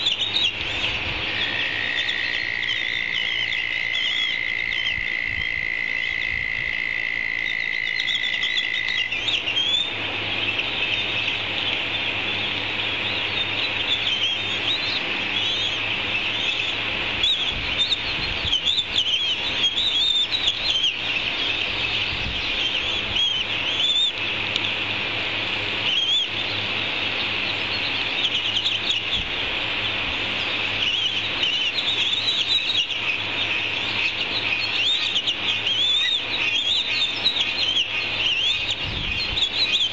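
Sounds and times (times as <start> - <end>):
high-pitched bird chirping: 7.5 - 11.2, 13.0 - 21.6, 22.4 - 24.2, 25.9 - 26.6, 30.8 - 39.9.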